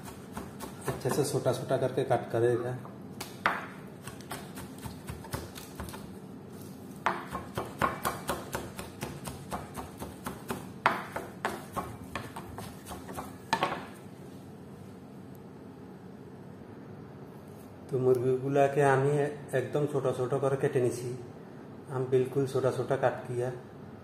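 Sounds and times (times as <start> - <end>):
knife chopping chicken: 0.0 - 1.4, 3.2 - 6.1, 7.0 - 13.8.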